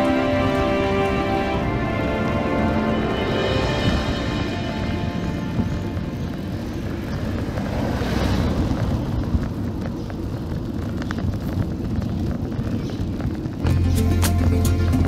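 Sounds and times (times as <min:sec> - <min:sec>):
music: 0:00.0 - 0:06.6, 0:13.6 - 0:15.0
street ambience: 0:00.0 - 0:15.0
wind buffeting microphone: 0:00.0 - 0:15.0.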